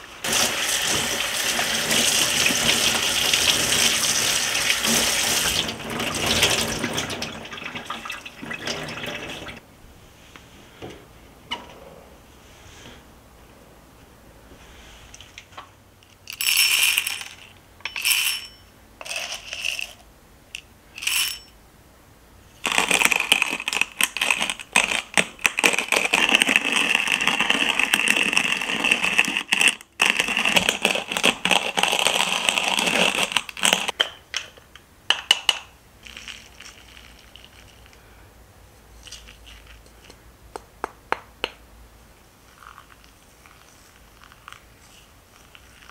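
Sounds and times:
small clinks: 0:16.0 - 0:19.9
coffee grinder crackling: 0:22.7 - 0:33.9.

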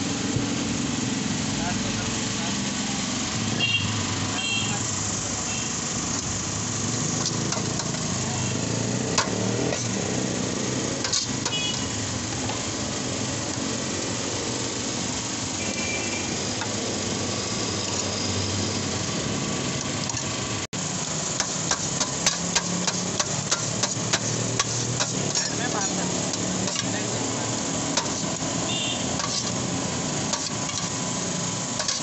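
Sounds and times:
steady mechanical hum: 0:00.0 - 0:32.0
knife scraping metal: 0:11.0 - 0:11.6, 0:21.4 - 0:26.0, 0:29.1 - 0:29.6, 0:30.3 - 0:30.9, 0:31.8 - 0:32.0.

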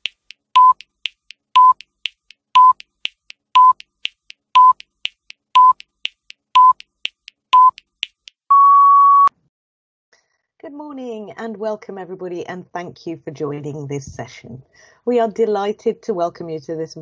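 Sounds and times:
long higher beep: 0:00.6 - 0:00.8, 0:01.6 - 0:01.8, 0:02.6 - 0:02.8, 0:03.6 - 0:03.8, 0:04.6 - 0:04.8, 0:05.6 - 0:05.8, 0:06.6 - 0:06.8, 0:07.6 - 0:07.8, 0:08.5 - 0:09.3
short electronic beeps: 0:00.6 - 0:00.9, 0:01.6 - 0:01.9, 0:02.6 - 0:02.9, 0:03.6 - 0:03.9, 0:04.6 - 0:04.9, 0:05.6 - 0:05.9, 0:06.6 - 0:06.9, 0:07.5 - 0:07.8, 0:08.5 - 0:09.3.

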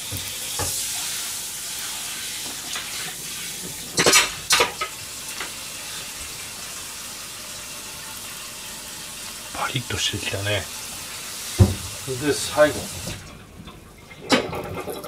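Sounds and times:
butter sizzling in a frying pan: 0:00.0 - 0:13.2.

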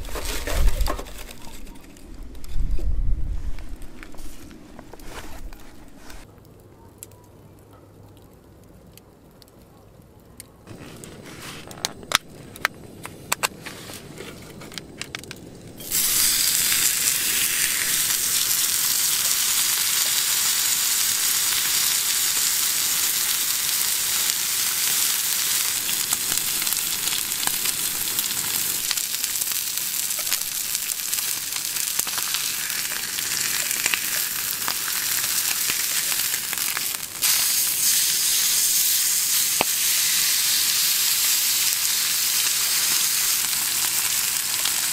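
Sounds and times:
sharp crackles: 0:00.0 - 0:44.9
steak sizzling on griddle: 0:15.8 - 0:44.9.

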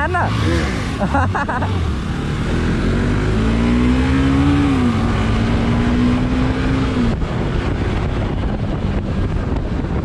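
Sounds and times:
motorcycle engine: 0:00.0 - 0:10.0
wind rushing over microphone: 0:02.4 - 0:10.0.

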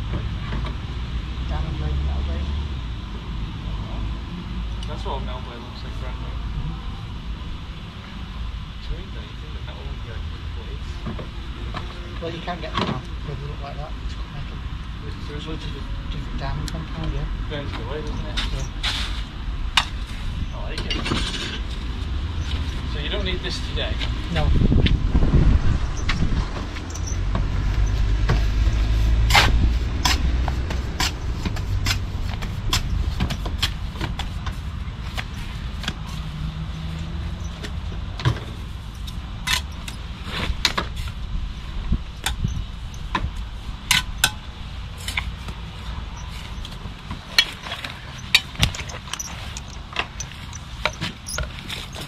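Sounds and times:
low rumble: 0:19.0 - 0:40.0
tools clicking and knocking: 0:46.2 - 0:52.0.

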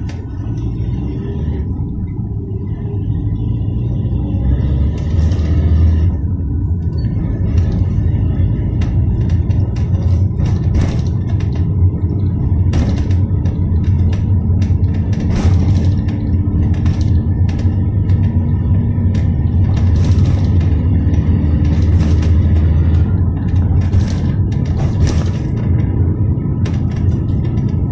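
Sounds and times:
minibus engine and road rumble: 0:00.0 - 0:27.9
body knocks and rattles: 0:06.8 - 0:27.9.

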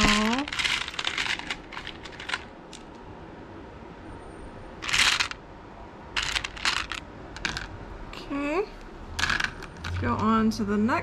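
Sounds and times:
beads clicking and rattling: 0:00.0 - 0:03.0, 0:04.8 - 0:05.4, 0:06.2 - 0:07.8, 0:09.2 - 0:10.0.

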